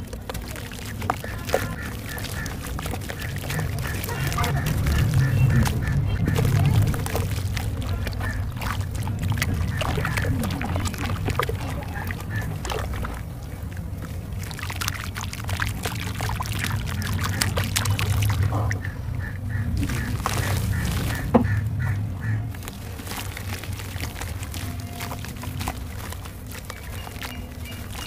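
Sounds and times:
cement pieces cracking and crunching: 0.0 - 12.3, 22.6 - 28.0.

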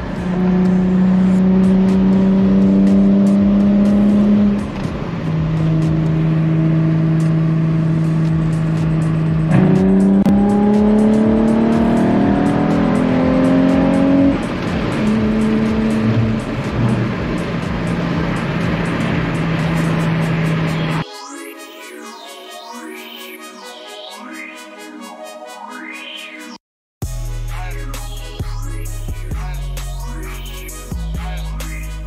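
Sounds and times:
car engine from inside cabin: 0.0 - 21.0
road noise: 0.0 - 21.1.

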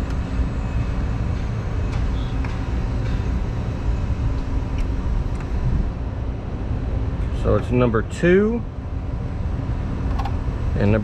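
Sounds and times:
air handling unit rumbling: 0.0 - 11.0.

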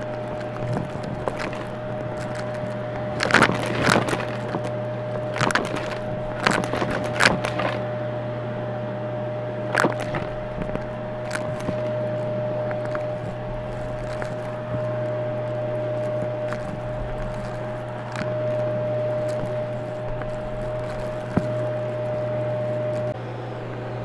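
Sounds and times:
debris crackling in nozzle: 0.0 - 7.9, 9.6 - 23.2
vacuum cleaner running: 0.0 - 24.0.

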